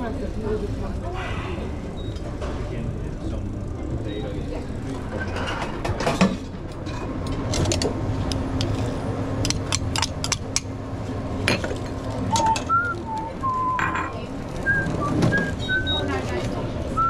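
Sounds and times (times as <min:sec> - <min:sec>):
steady low hum: 0:00.0 - 0:17.0
utensils and dishes clattering: 0:05.0 - 0:08.0, 0:11.4 - 0:12.9, 0:13.6 - 0:16.6.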